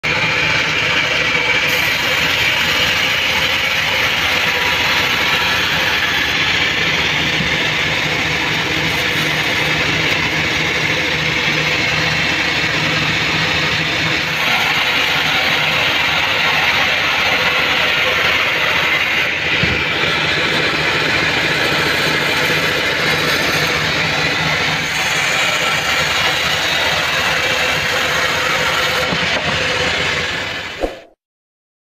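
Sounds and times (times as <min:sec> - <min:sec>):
band saw ripping through log: 0:14.3 - 0:20.1.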